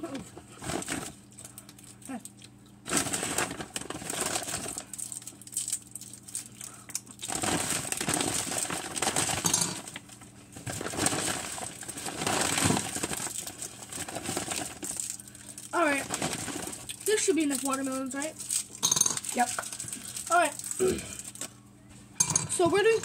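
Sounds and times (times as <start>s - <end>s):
plastic wrappers crinkling: 0.5s - 21.6s
hard candies clicking together: 4.6s - 7.4s.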